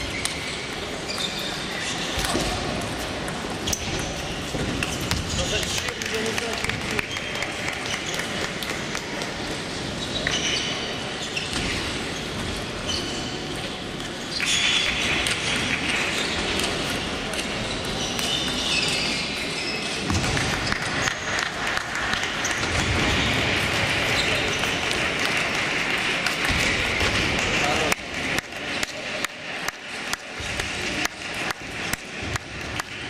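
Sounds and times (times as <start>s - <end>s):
table tennis balls clicking: 0.1s - 9.6s.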